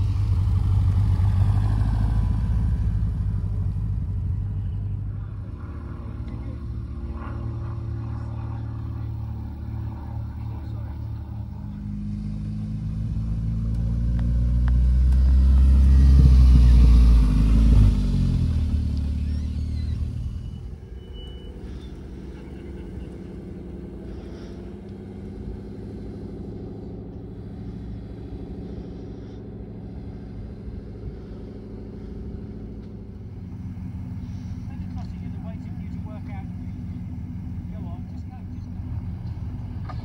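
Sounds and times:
sports car revving past: 0.0s - 3.9s, 10.4s - 20.6s
car engine running at low revs: 0.0s - 40.0s.

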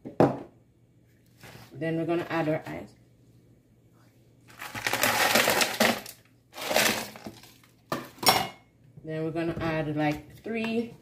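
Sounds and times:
ice cubes clattering into blender jar: 4.6s - 7.5s.

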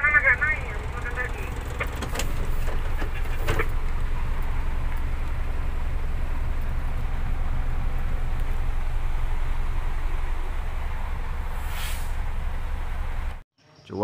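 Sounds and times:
diesel engine low rumble: 0.0s - 13.4s
road noise: 0.0s - 14.0s.

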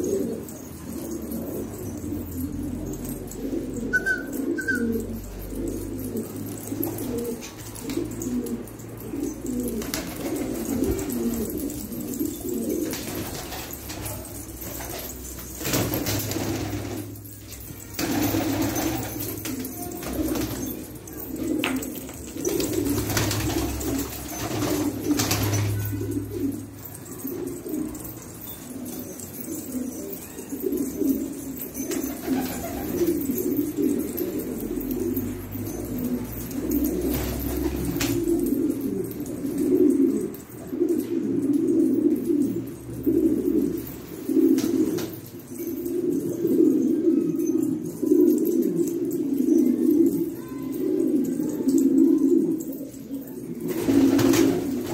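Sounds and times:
pigeons cooing: 0.0s - 54.9s
wings flapping: 53.7s - 54.9s.

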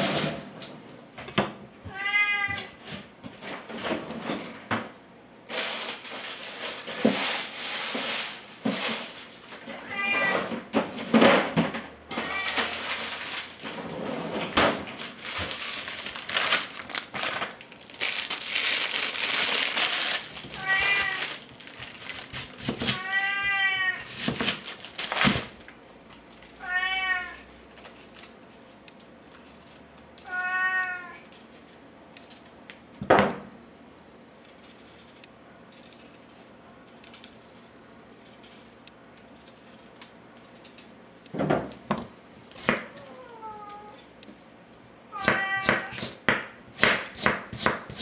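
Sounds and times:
cat meowing: 1.9s - 2.8s, 9.8s - 10.5s, 12.1s - 12.8s, 20.5s - 21.4s, 22.9s - 24.1s, 26.6s - 27.5s, 30.2s - 31.2s, 42.9s - 44.0s, 45.1s - 46.0s
clattering and rustling: 2.6s - 4.9s, 5.5s - 18.1s.

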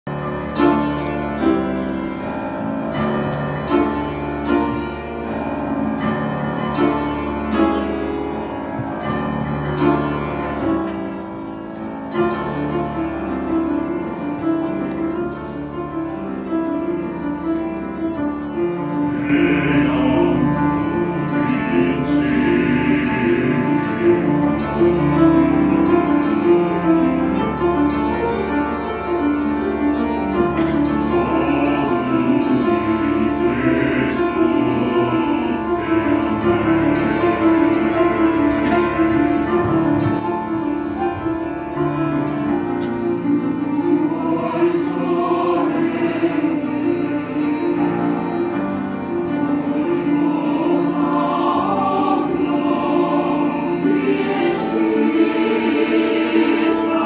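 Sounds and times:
piano accompaniment: 0.0s - 57.0s
mixed choir singing: 12.1s - 57.0s.

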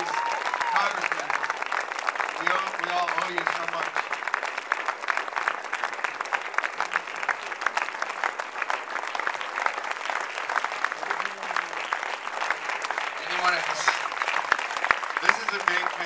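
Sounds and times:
audience applause: 0.0s - 16.0s.

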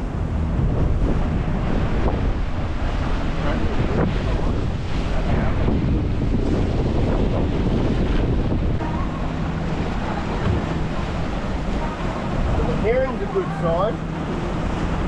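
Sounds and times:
water rushing past boat hull: 0.0s - 15.0s
wind buffeting microphone: 0.0s - 15.0s
faint engine drone: 8.6s - 15.0s.

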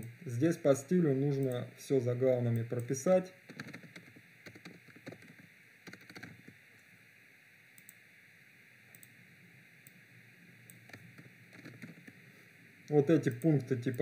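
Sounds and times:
steady low hiss: 0.0s - 14.0s
keyboard typing: 3.5s - 6.5s, 10.9s - 12.2s
mouse clicks: 8.9s - 9.1s.

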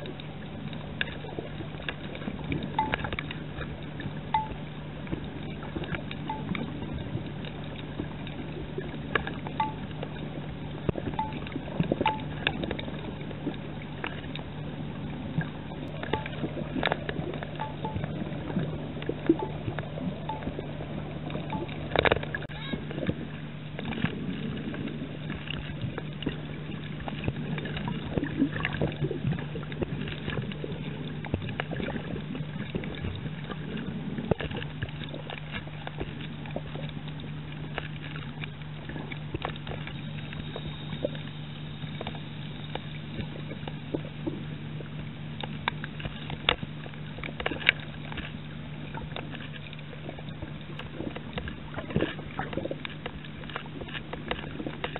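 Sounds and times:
underwater clicks and crackles: 0.0s - 54.9s
underwater low hum: 0.0s - 54.9s.

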